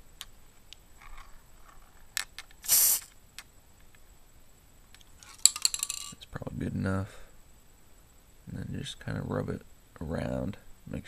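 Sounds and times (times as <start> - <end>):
aerosol spray hiss: 2.6 - 3.2.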